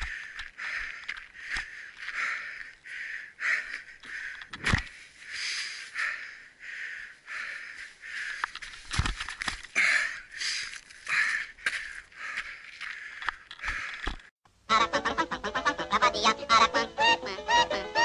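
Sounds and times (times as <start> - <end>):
person breathing hard: 0.0 - 9.0, 9.7 - 14.3.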